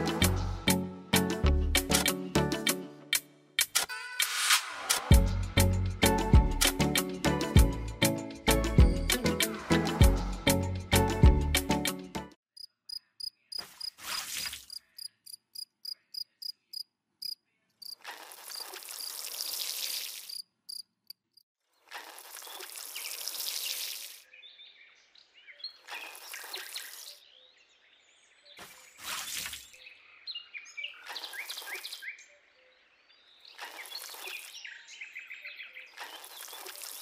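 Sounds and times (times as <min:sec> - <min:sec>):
music: 0:00.0 - 0:12.4
cricket chirping: 0:12.6 - 0:14.0, 0:14.7 - 0:19.2, 0:20.3 - 0:21.4
water splashing onto sand: 0:22.0 - 0:24.2, 0:29.0 - 0:29.8, 0:36.0 - 0:37.0.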